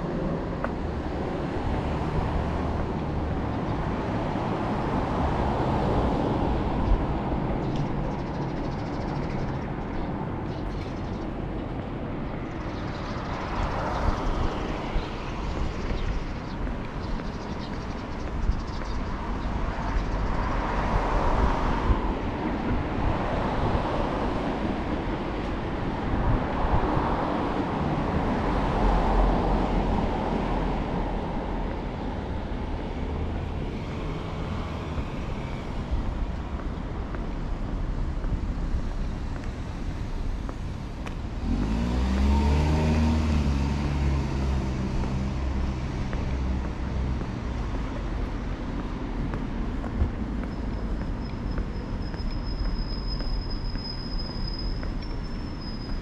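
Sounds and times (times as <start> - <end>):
cars passing on street: 0.0 - 56.0
loud engine passing close: 41.3 - 46.9.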